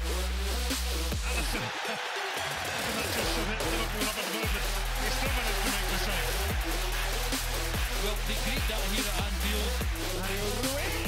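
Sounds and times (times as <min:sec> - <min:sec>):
electronic dance music: 0:00.0 - 0:11.0.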